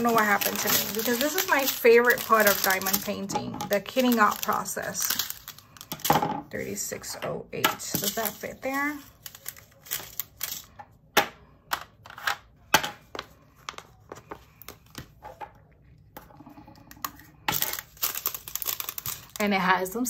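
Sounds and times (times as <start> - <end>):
plastic bag rustling: 0.0 - 6.1, 7.8 - 10.7, 17.5 - 19.7.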